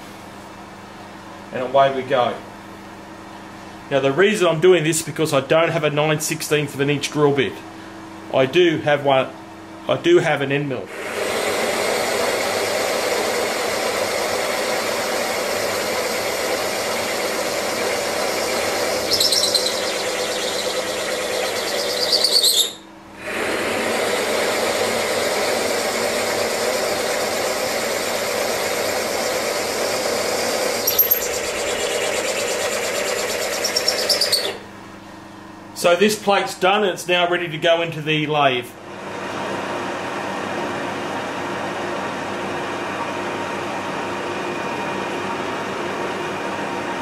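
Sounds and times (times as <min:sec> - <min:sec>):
milling machine spindle running: 0:10.9 - 0:34.6
cutter squealing: 0:16.2 - 0:22.9, 0:24.4 - 0:34.6.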